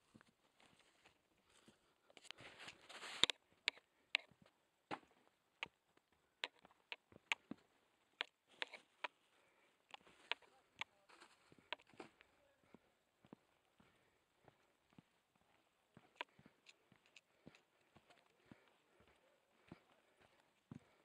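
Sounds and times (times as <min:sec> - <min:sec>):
footsteps on rocky path: 0:08.5 - 0:21.0.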